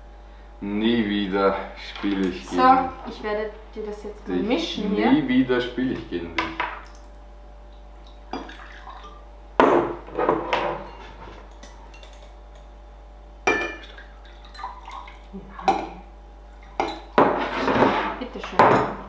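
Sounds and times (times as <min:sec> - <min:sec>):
water pouring into glass: 0:08.0 - 0:09.2, 0:13.6 - 0:15.9
glass bottles clinking on table: 0:13.5 - 0:13.9.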